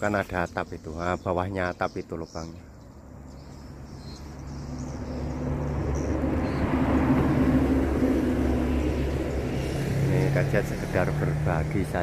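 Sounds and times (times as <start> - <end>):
vehicle engine humming: 2.9 - 12.0.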